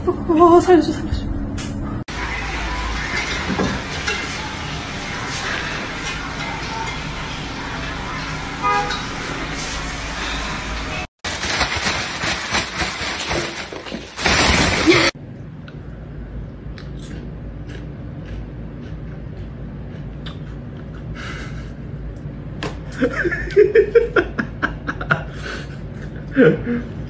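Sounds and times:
plastic bag rustling: 0:11.2 - 0:15.2.

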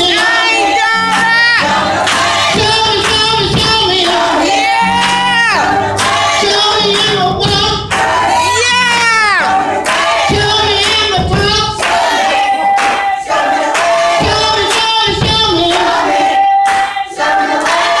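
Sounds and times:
group singing church song: 0:00.0 - 0:18.0
band drums and guitar: 0:10.3 - 0:11.8.

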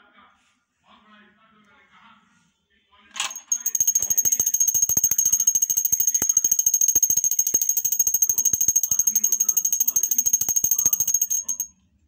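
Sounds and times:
hand bell ringing rapidly: 0:03.2 - 0:11.7.

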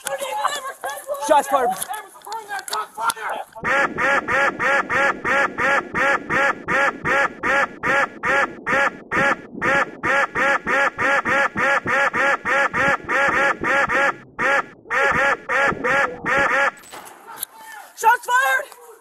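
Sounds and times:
rapid duck quacks: 0:03.6 - 0:16.8.

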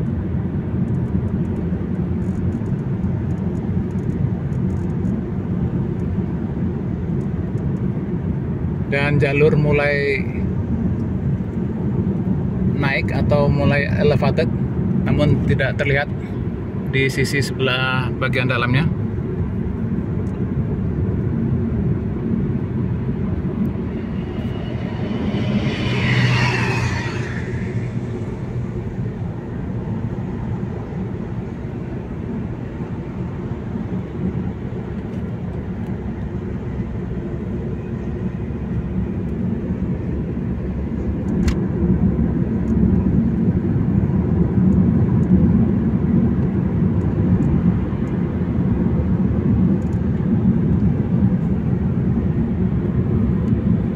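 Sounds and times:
passing vehicle whine: 0:00.0 - 0:17.3, 0:18.9 - 0:53.9
car cabin road noise: 0:19.0 - 0:43.2.

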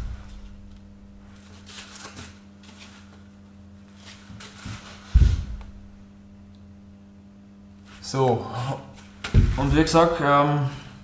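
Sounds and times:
steady low hum: 0:00.0 - 0:11.0
rustling and scraping: 0:01.2 - 0:05.7
dull thump: 0:05.1 - 0:05.9, 0:09.2 - 0:09.8.

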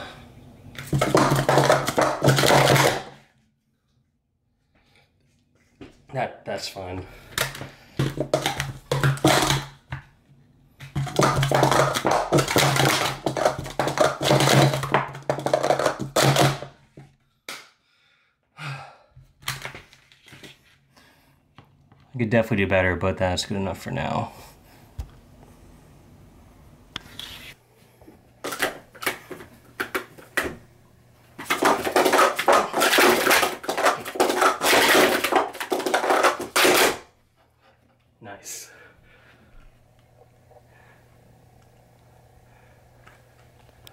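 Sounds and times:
plastic cups clattering: 0:00.8 - 0:03.2, 0:07.4 - 0:10.0, 0:10.8 - 0:16.8, 0:28.4 - 0:30.6, 0:31.3 - 0:37.1.

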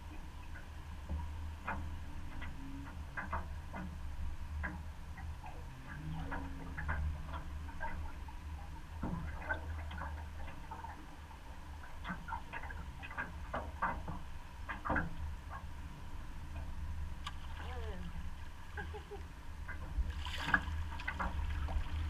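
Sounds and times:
river current rumbling: 0:00.0 - 0:22.0
light clicks and ticks: 0:00.1 - 0:15.8.

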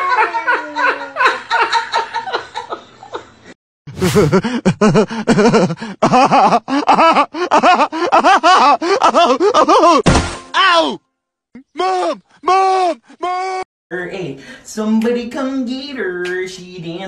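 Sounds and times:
person laughing: 0:03.9 - 0:10.0.

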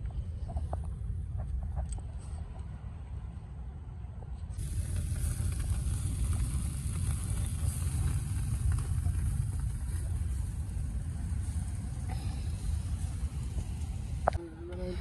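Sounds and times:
wind buffeting microphone: 0:04.0 - 0:14.4.

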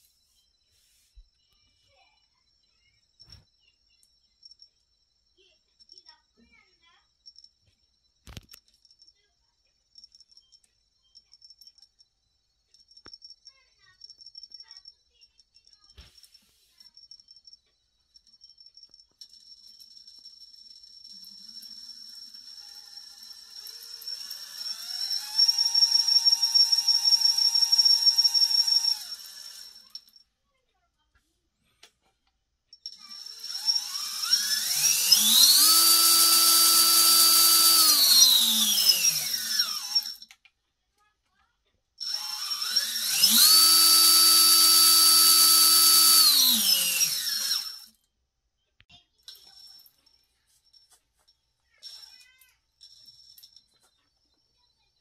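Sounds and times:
electric motor whine: 0:22.0 - 0:29.8, 0:33.1 - 0:40.2, 0:42.1 - 0:47.8
constant high whistle: 0:23.5 - 0:29.9.

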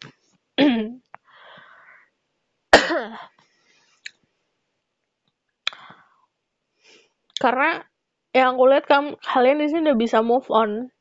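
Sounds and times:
woman coughing: 0:00.6 - 0:01.0, 0:02.8 - 0:03.4
woman breathing: 0:01.2 - 0:02.2, 0:03.3 - 0:04.0, 0:05.7 - 0:07.2.

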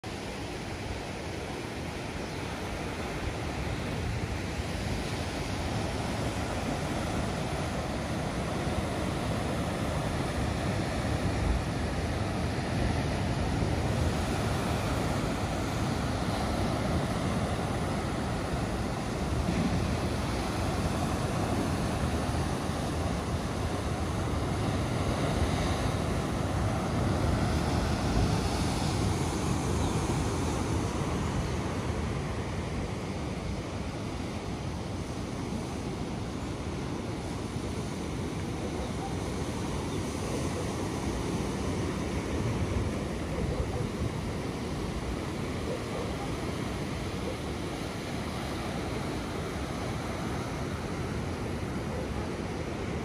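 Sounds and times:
surf washing onto beach: 0:00.2 - 0:53.0.

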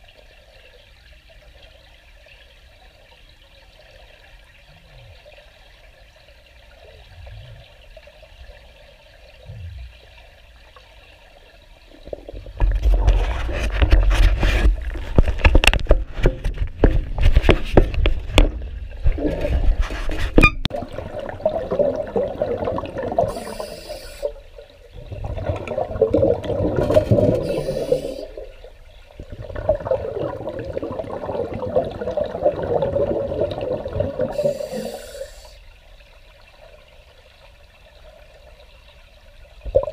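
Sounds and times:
underwater breath bubbles: 0:20.7 - 0:35.6.

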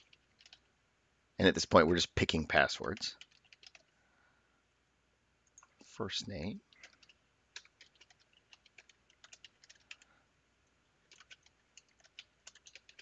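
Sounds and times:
keyboard typing: 0:00.0 - 0:00.7, 0:02.8 - 0:03.9, 0:06.7 - 0:10.1, 0:11.0 - 0:13.0.

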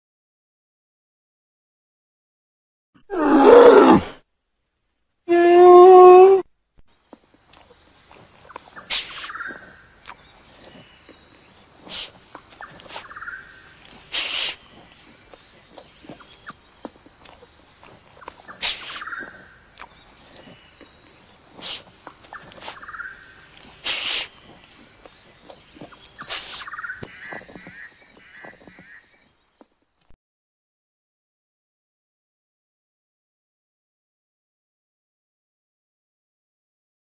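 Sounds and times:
faint steady background noise: 0:03.1 - 0:30.2.

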